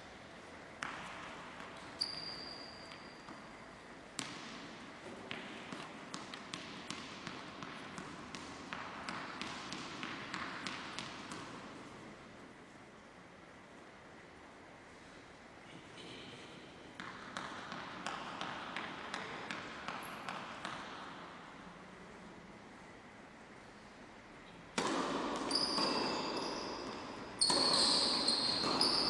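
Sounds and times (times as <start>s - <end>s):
tennis ball bouncing on hard floor: 0.8s - 11.9s, 17.0s - 21.4s, 24.7s - 29.0s.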